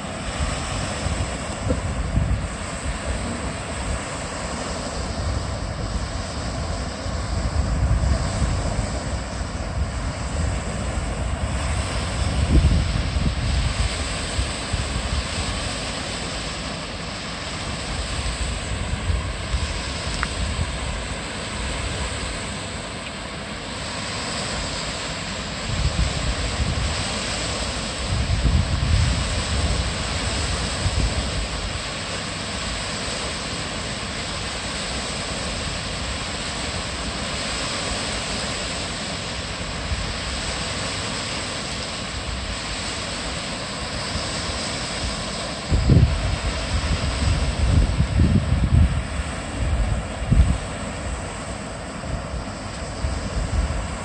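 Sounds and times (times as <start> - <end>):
wind buffeting microphone: 0.0 - 23.3, 25.3 - 32.6, 45.6 - 51.3, 52.0 - 54.0.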